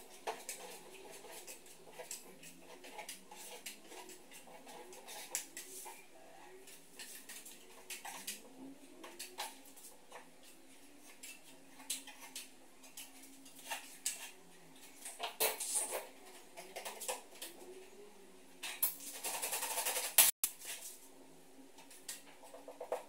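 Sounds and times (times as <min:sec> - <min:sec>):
hand tool scraping plasterboard: 0:00.0 - 0:06.0.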